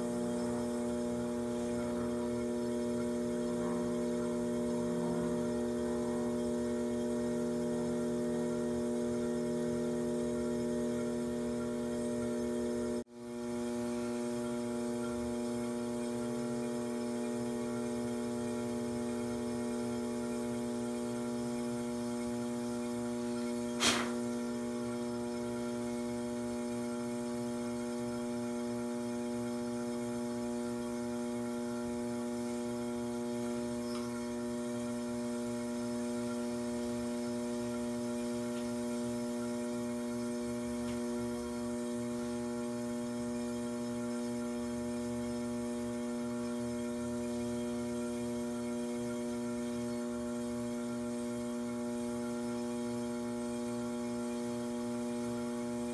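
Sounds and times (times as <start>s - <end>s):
pottery wheel motor humming: 0.0s - 55.9s
sharp click: 23.8s - 24.2s.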